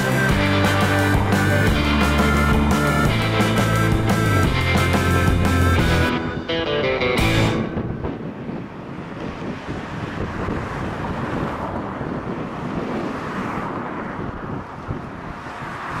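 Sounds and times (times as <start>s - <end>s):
wind buffeting microphone: 7.2s - 16.0s.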